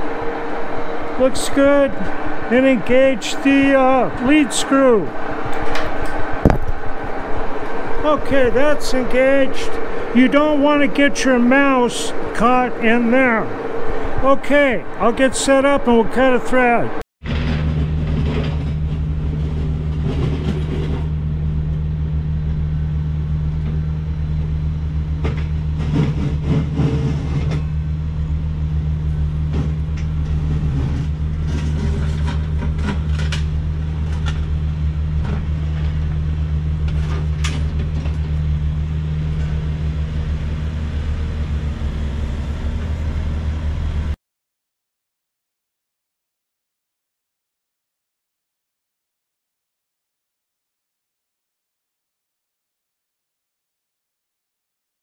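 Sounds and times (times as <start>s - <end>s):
diesel engines droning: 0.0s - 44.2s
knocks and clanks: 2.0s - 7.8s, 17.2s - 21.8s, 25.2s - 27.8s, 29.4s - 34.6s.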